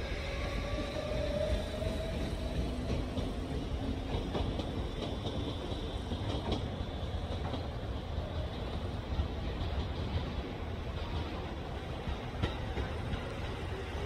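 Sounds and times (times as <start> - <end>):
train rumbling on track: 0.0 - 14.0
train wheel clicks: 1.8 - 7.8, 11.1 - 13.7.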